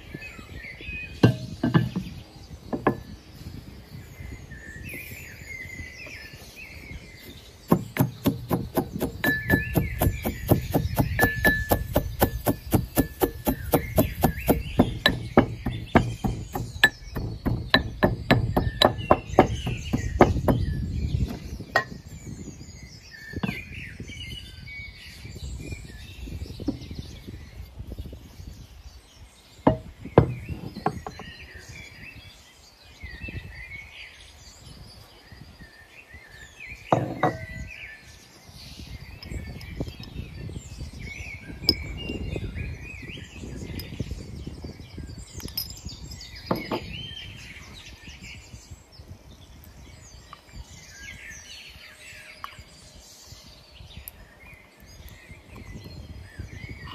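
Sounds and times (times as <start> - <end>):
birds chirping: 0.0 - 56.9
metal pestle pounding in mortar: 1.2 - 2.0, 7.7 - 20.7, 37.0 - 37.6
single knocks: 29.7 - 31.2.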